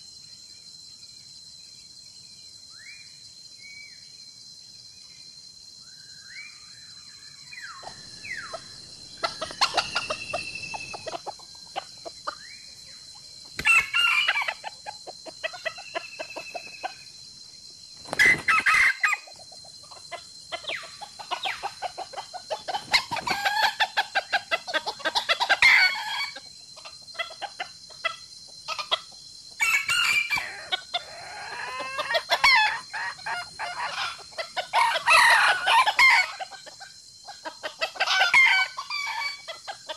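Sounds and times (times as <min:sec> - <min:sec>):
rooster crowing: 0:07.8 - 0:11.8, 0:13.6 - 0:14.8, 0:22.9 - 0:24.0, 0:25.1 - 0:26.4, 0:29.6 - 0:36.5, 0:37.8 - 0:39.8
chickens clucking: 0:07.8 - 0:17.0, 0:18.0 - 0:29.2, 0:30.0 - 0:39.9.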